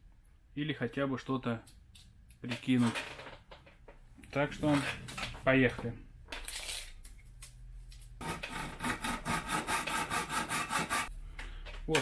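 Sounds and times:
hacksaw cutting metal: 8.2 - 11.1.

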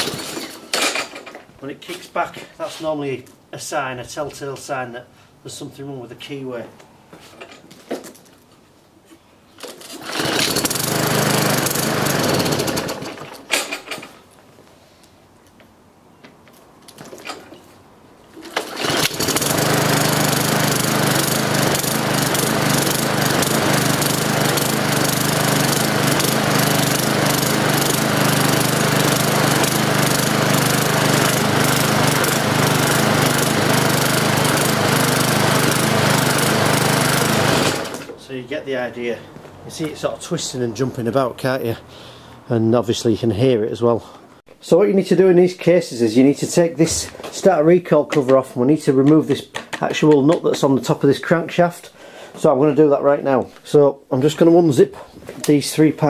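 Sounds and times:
lawn mower engine pull-started: 0.0 - 1.5, 9.6 - 14.2, 18.3 - 38.2.

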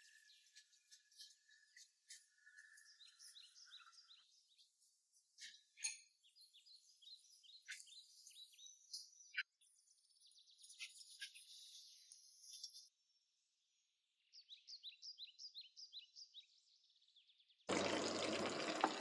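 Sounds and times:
birds chirping: 0.0 - 12.9.

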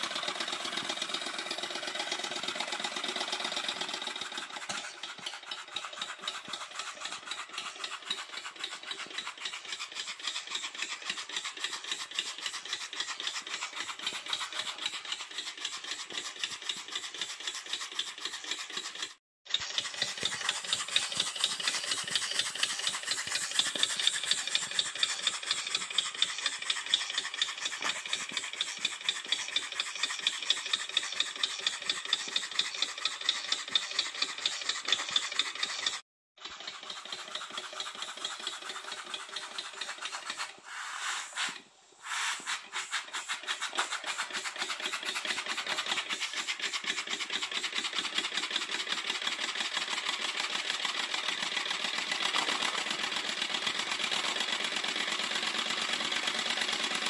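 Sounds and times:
model steam engine beat: 0.0 - 57.0
steam hiss: 40.3 - 44.5.

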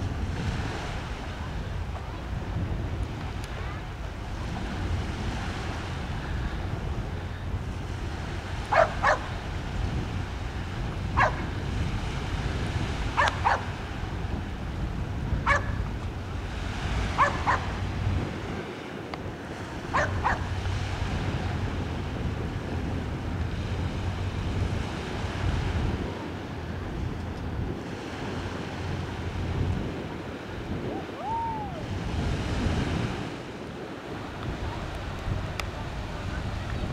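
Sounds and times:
wind rumbling on microphone: 0.0 - 36.9
dog barking: 8.7 - 9.3, 11.2 - 11.5, 13.2 - 13.7, 15.5 - 15.8, 17.2 - 17.7, 19.9 - 20.5.

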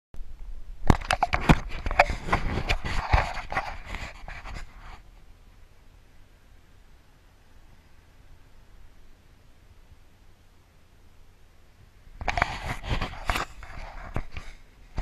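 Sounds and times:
camera handling knocks and clicks: 0.9 - 3.6
faint hiss: 3.8 - 15.0.

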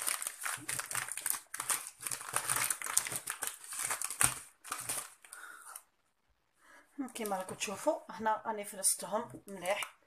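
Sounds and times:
plastic packets crinkling: 0.0 - 5.8.

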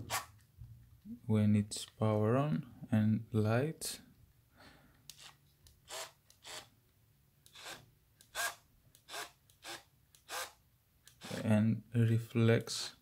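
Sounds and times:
person breathing: 4.5 - 5.1.

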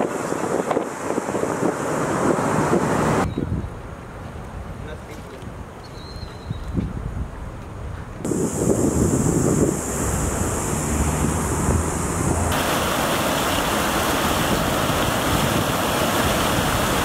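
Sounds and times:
rushing floodwater: 0.0 - 3.3, 8.3 - 17.0
wind buffeting microphone: 0.0 - 17.0.

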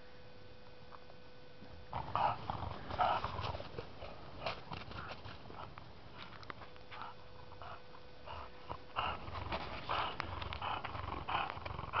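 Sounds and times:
dog breathing noisily: 2.0 - 5.8, 6.9 - 12.0.

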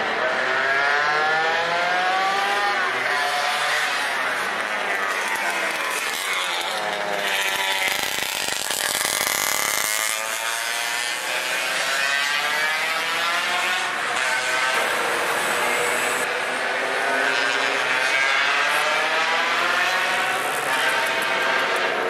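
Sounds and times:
mopeds and motorcycles passing: 0.4 - 22.0.

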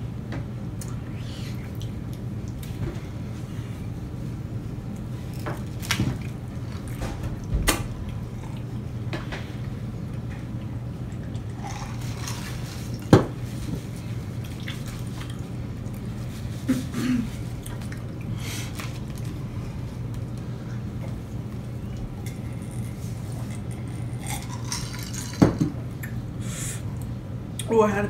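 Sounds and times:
steady low hum: 0.0 - 28.0
chewing noises: 8.0 - 8.8, 10.1 - 13.0.

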